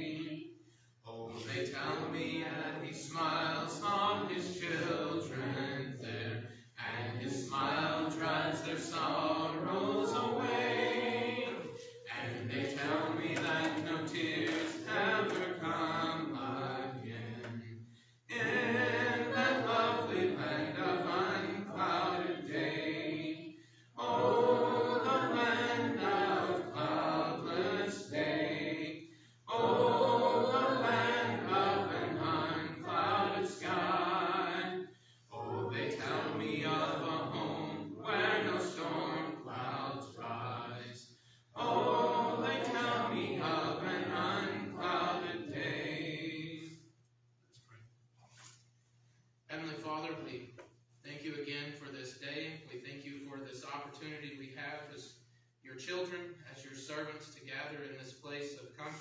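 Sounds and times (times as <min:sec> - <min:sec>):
congregation singing a hymn: 0:00.0 - 0:46.9.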